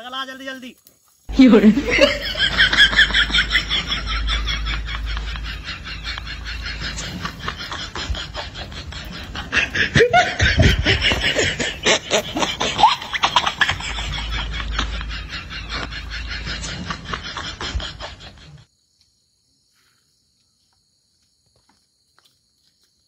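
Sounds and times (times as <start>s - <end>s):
person laughing: 1.3s - 18.6s.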